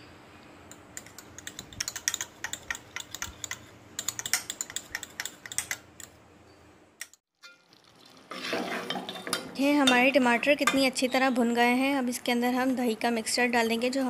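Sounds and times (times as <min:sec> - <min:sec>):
spoon clicking against glass bowl: 0:00.7 - 0:06.2.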